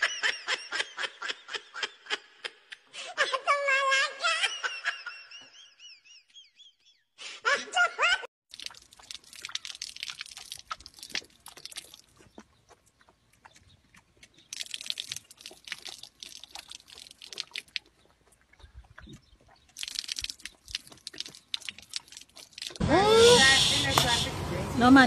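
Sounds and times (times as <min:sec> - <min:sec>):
goat lapping water: 0:08.5 - 0:22.8
water trickling: 0:08.5 - 0:22.8.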